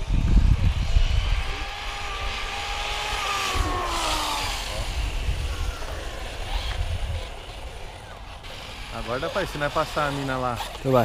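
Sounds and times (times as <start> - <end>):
wind rumble on microphone: 0.0 - 8.1
electric motors whining: 0.0 - 11.0.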